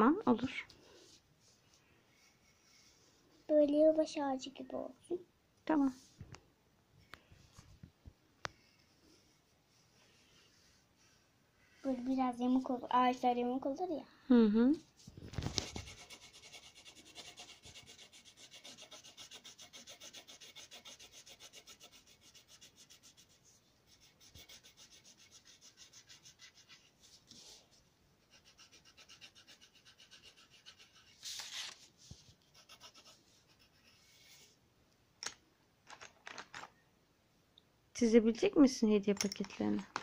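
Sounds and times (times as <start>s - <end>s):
pencil shading on paper: 15.6s - 27.5s, 28.2s - 31.2s, 32.4s - 34.4s.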